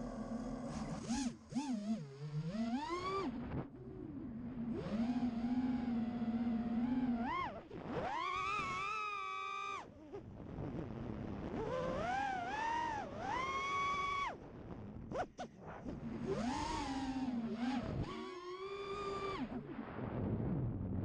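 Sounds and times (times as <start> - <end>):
drone motors whining: 0.0 - 3.7, 16.2 - 19.6.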